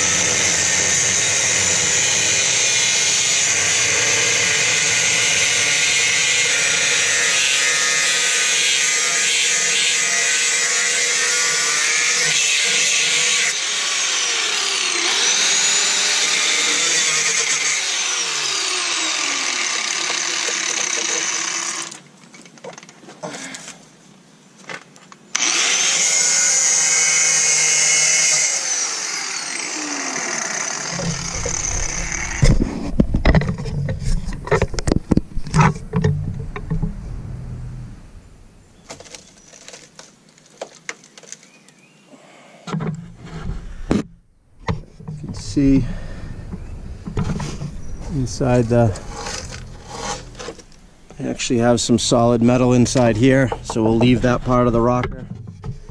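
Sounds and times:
angle grinder cutting steel: 0.0s - 21.9s, 25.4s - 32.9s, 47.9s - 50.8s
irregular knocks and thumps: 30.9s - 37.3s, 46.4s - 48.2s, 53.5s - 55.9s.

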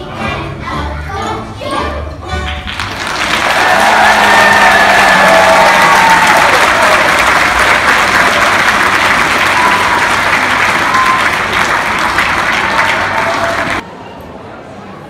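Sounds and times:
audience applauding: 2.7s - 13.8s.

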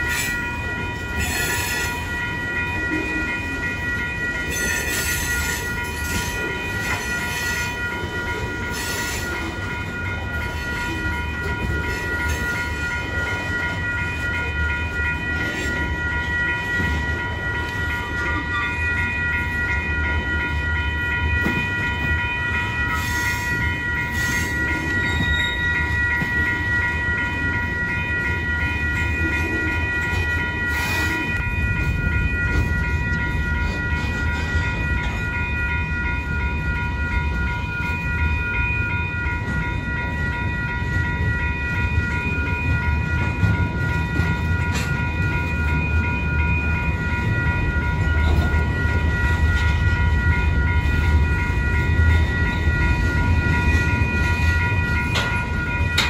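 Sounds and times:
high-pitched ringing tone: 0.0s - 56.0s
train rumbling on rails: 0.0s - 56.0s.

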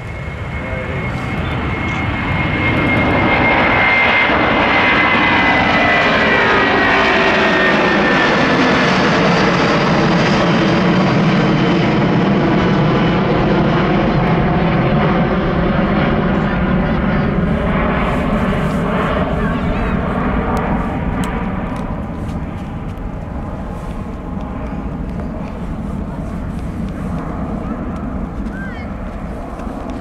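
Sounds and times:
jet engines at takeoff: 0.0s - 30.0s.

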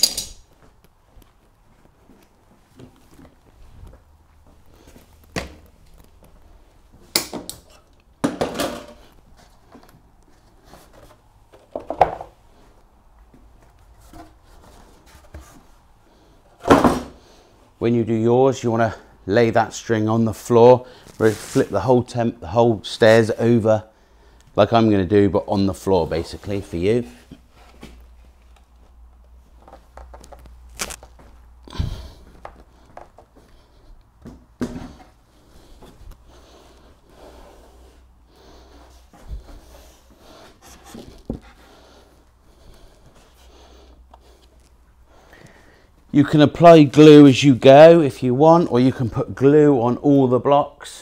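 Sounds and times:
shuffling footsteps: 0.4s - 7.0s, 25.7s - 43.5s.

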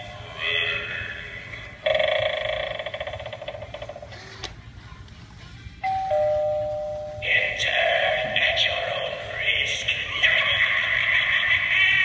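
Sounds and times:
two-note ding-dong chime: 5.8s - 7.3s
loud bell ring: 5.8s - 7.6s.

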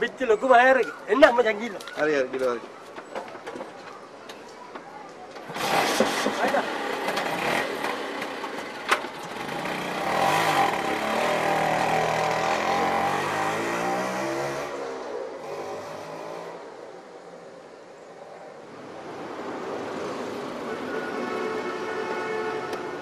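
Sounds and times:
small engine revving: 5.5s - 8.2s, 9.3s - 16.6s.

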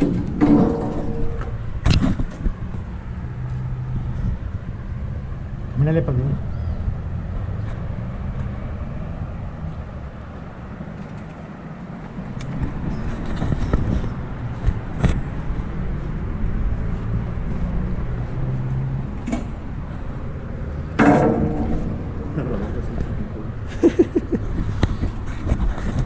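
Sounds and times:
sharp knocks: 0.0s - 2.4s, 21.0s - 22.3s
distant city traffic rumble: 0.0s - 26.0s
faint engine hum: 1.0s - 26.0s.

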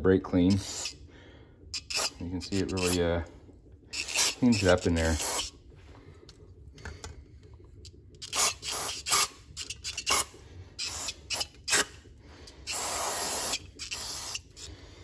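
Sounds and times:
aerosol spray bursts: 12.7s - 14.7s.

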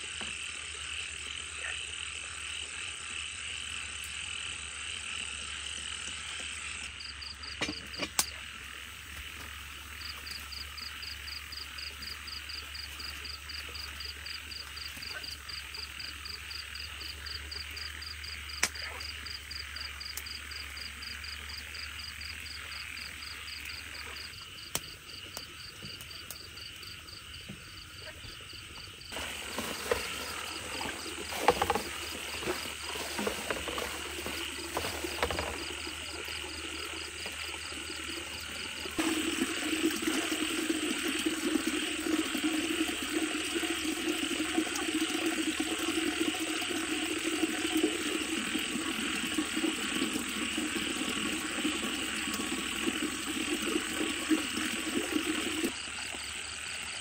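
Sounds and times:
high insect trill: 0.0s - 57.0s
fast pulsing frog call: 0.4s - 55.7s
water splashing and pouring: 29.1s - 57.0s.

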